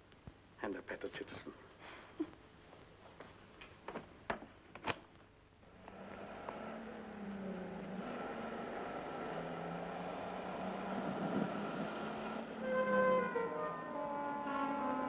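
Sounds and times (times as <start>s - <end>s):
street traffic noise: 5.6s - 15.0s.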